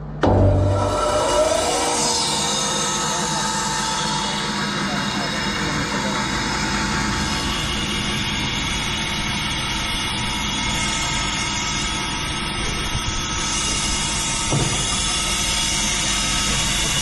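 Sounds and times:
band saw humming: 0.0 - 17.0
radiator knocking on saw table: 14.5 - 14.9.

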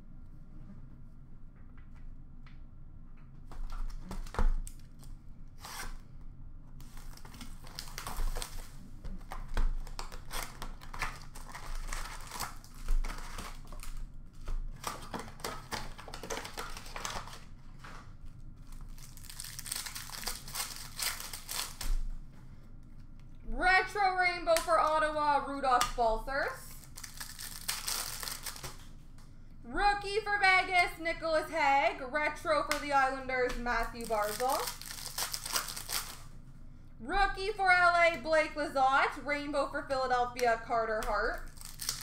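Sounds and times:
plastic wrapper ripping: 6.8 - 18.0, 18.6 - 22.1, 26.7 - 29.0, 33.8 - 36.3, 41.0 - 42.0
plastic wrappers crinkling: 6.8 - 22.1, 26.6 - 29.0, 33.5 - 36.3, 41.0 - 42.0.

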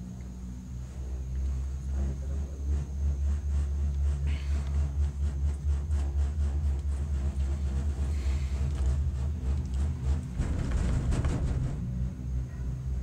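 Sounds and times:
cable car gondola rumble: 0.0 - 13.0
rapid rattling clatter: 2.7 - 12.3.

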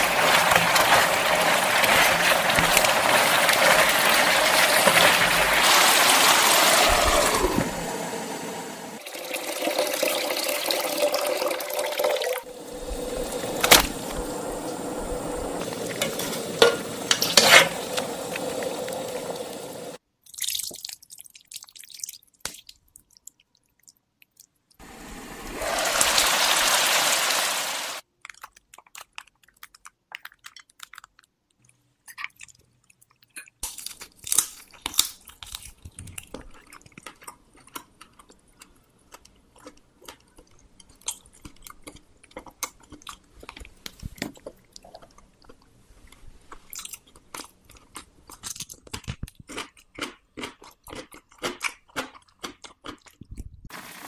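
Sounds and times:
water pouring into pot: 0.0 - 22.1, 24.8 - 28.0.

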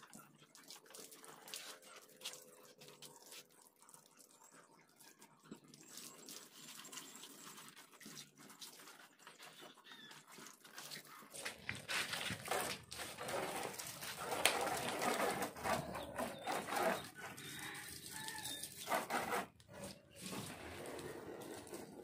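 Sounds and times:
hose spraying water: 10.5 - 22.0.

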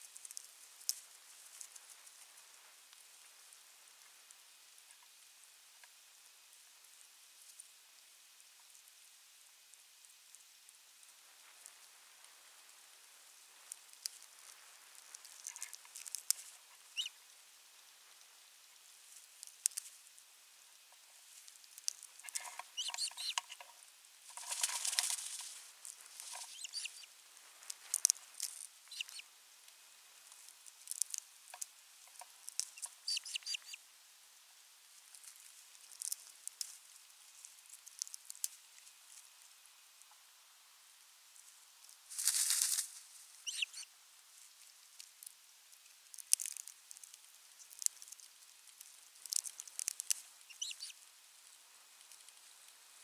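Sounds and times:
rustling in stick nest: 0.0 - 4.2, 11.2 - 17.2, 17.9 - 33.8, 41.8 - 45.3, 46.1 - 53.0.

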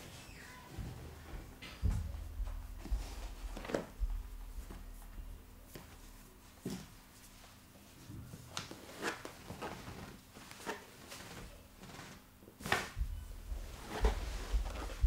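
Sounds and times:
low thumps from body movement: 13.0 - 15.0.

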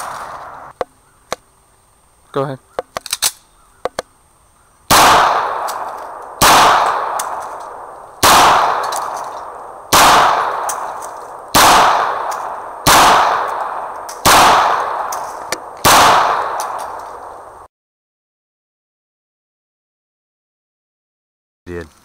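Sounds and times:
pistol shots with echo: 4.9 - 17.5.

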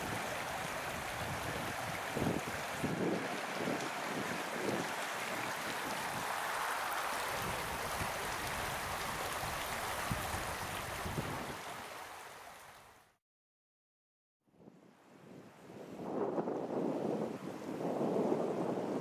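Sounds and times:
stream splashing over stones: 0.0 - 12.9.

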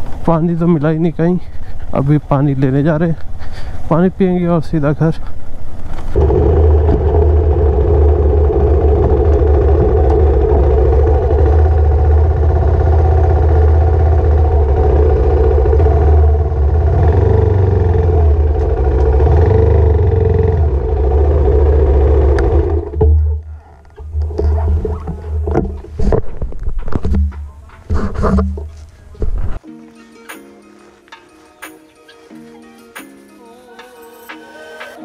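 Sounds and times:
motorcycle engine running: 6.0 - 26.2
clicks and knocks: 22.8 - 29.6.

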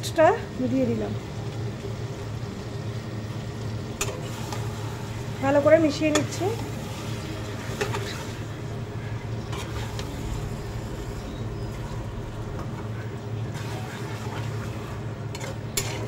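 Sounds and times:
steady low hum: 0.0 - 16.0
spatula stirring meat in pan: 6.0 - 10.2, 13.5 - 16.0.

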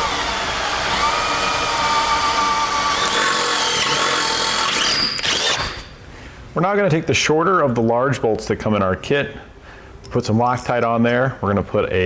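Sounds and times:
electric drill whining through metal: 0.0 - 5.9.

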